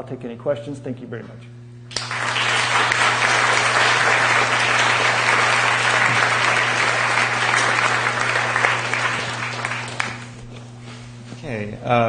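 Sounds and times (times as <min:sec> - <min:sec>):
audience applauding: 0:01.9 - 0:10.4.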